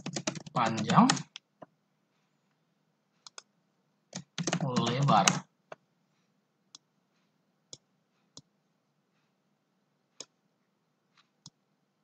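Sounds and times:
computer mouse clicking: 3.2s - 3.5s, 10.2s - 10.4s.

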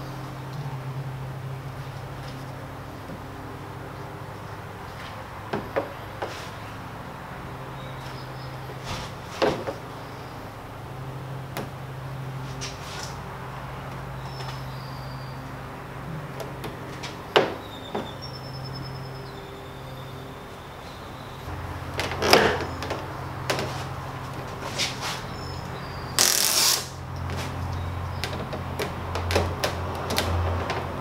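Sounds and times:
steady low hum: 0.0s - 31.0s
rustling: 8.0s - 9.8s, 20.9s - 27.7s.

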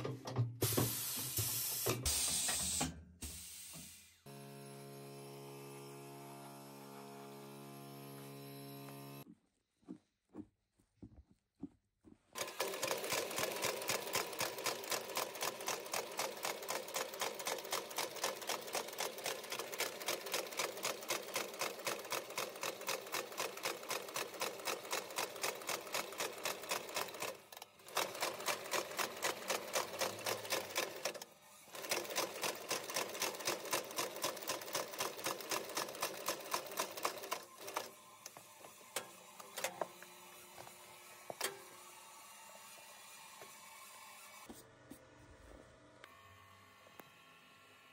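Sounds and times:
stitching machine clatter: 12.4s - 37.9s.

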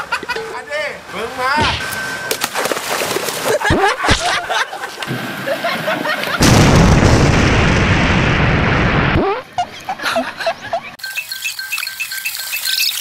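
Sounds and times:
water splashing: 1.8s - 3.9s, 11.1s - 13.0s
explosion sound effect: 6.4s - 9.4s.

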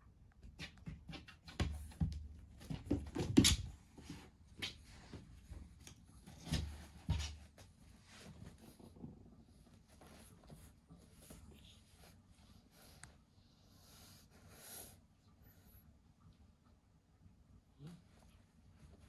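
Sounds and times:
cat scuffling with toy: 0.6s - 12.0s.

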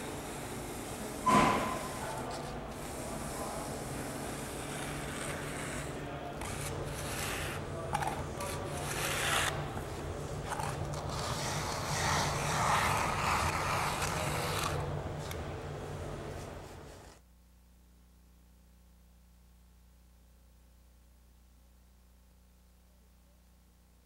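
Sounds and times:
wooden float scraping wall plaster: 0.2s - 15.4s.

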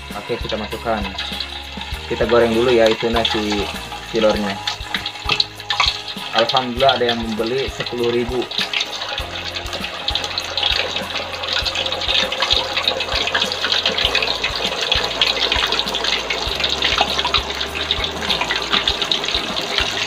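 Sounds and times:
food sizzling in hot oil: 0.0s - 20.0s.

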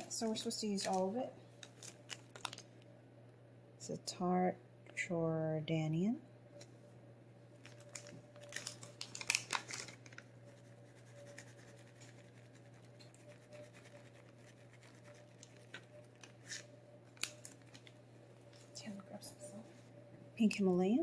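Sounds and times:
steady low hum: 0.0s - 21.0s
spice packet crinkling and tearing: 0.8s - 2.8s, 7.6s - 18.0s.

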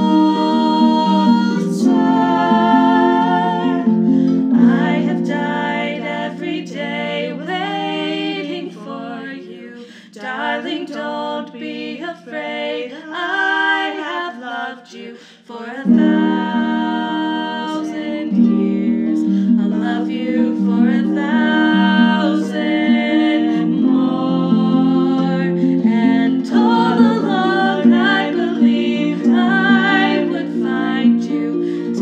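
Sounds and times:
pedal harp notes: 0.0s - 8.9s
women singing in harmony: 0.0s - 32.0s.

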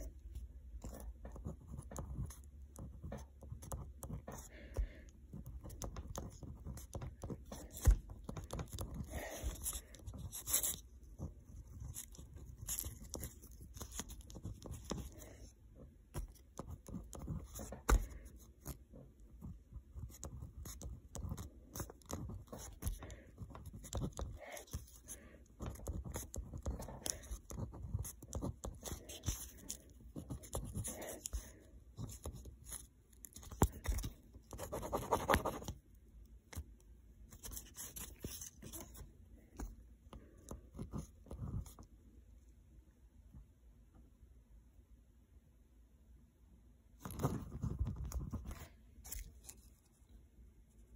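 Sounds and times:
pen scratching on paper: 0.8s - 15.5s, 16.2s - 35.8s, 37.3s - 39.0s, 40.5s - 41.8s, 47.0s - 49.7s.

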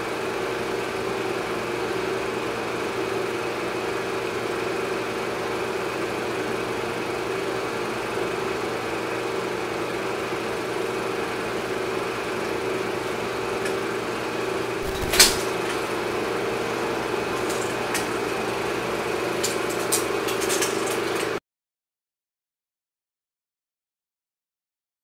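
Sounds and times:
sharp click: 14.8s - 15.6s.

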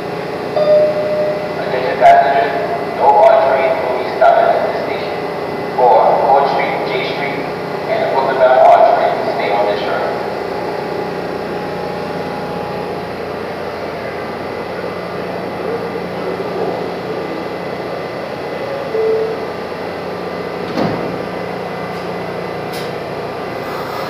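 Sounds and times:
subway train idling hum: 0.0s - 24.0s
short tone: 0.6s - 1.7s, 18.7s - 19.5s
train doors sliding shut: 20.5s - 24.0s.

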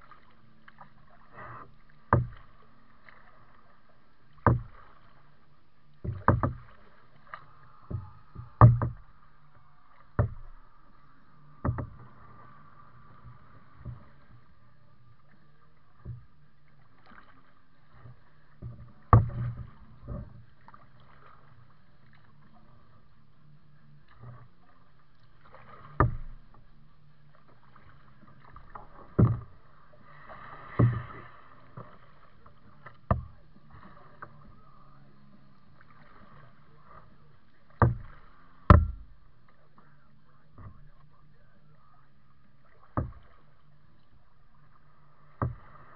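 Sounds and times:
paddle knocking on plastic hull: 1.4s - 2.6s, 4.3s - 5.0s, 6.0s - 6.9s, 7.8s - 9.2s, 10.0s - 10.7s, 11.5s - 12.2s, 18.0s - 20.4s, 25.4s - 26.6s, 28.2s - 29.6s, 30.6s - 34.4s, 37.6s - 39.2s, 39.8s - 41.0s, 42.8s - 43.8s, 45.2s - 45.8s.

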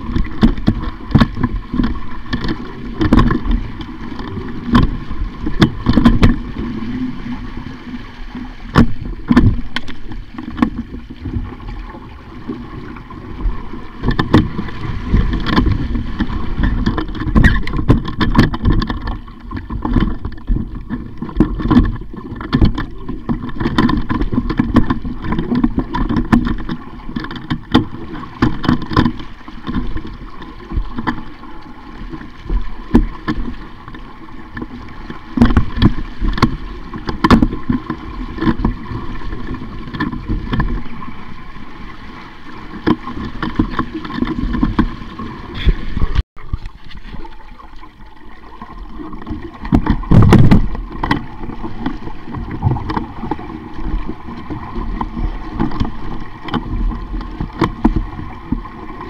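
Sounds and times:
water rushing along a hull: 0.0s - 59.0s
wind noise: 42.9s - 47.4s, 49.0s - 59.0s.

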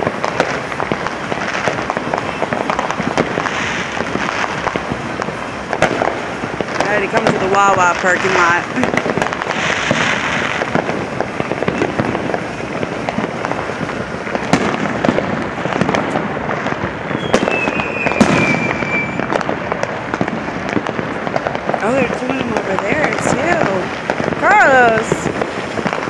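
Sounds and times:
high firework whistle: 0.0s - 20.8s
fireworks crackling and banging: 0.0s - 26.0s.

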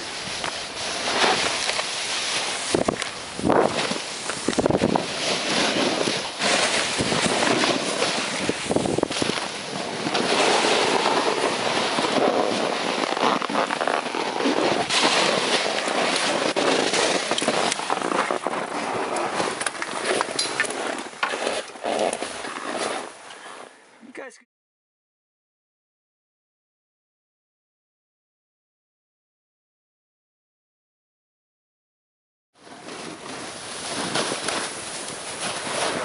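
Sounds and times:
skis crunching through snow: 0.0s - 23.7s, 32.6s - 36.0s.

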